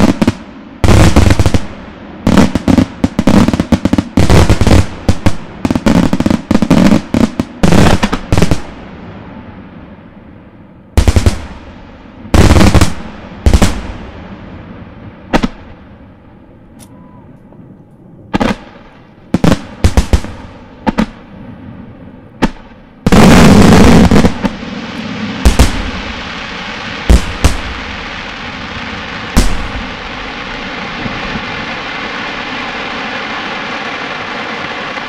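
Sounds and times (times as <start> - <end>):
rapid roll of firework bangs: 0.0 - 9.2, 10.9 - 16.0, 18.3 - 35.0
fireworks shells bursting with bangs: 22.3 - 35.0.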